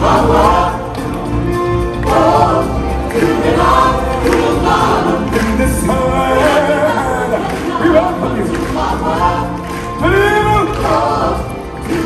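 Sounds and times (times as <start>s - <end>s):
choir singing: 0.0s - 12.0s
steady low bass accompaniment: 0.0s - 12.0s.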